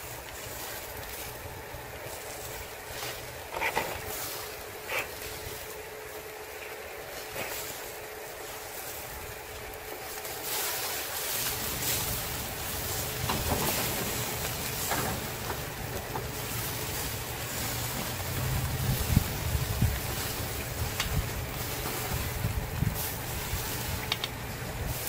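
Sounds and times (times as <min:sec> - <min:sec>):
fish sizzling on a grill: 0:00.0 - 0:25.0
low steady rumble: 0:00.0 - 0:25.0
crackles and pops: 0:19.7 - 0:24.6.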